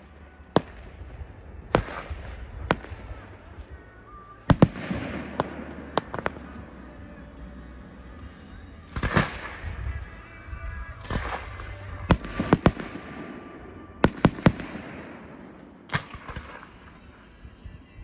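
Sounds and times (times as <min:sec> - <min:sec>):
firework bursts with crackle: 0:04.5 - 0:06.4, 0:08.9 - 0:09.7, 0:11.0 - 0:15.0
sharp firework bangs: 0:04.5 - 0:06.7, 0:08.9 - 0:09.9, 0:11.0 - 0:15.3.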